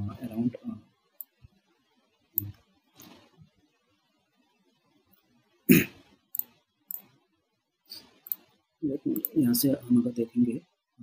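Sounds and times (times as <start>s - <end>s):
person coughing: 5.7s - 6.0s.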